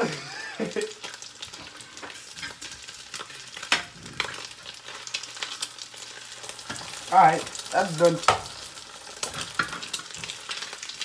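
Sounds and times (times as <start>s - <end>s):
egg sizzling in a pan: 0.0s - 11.0s.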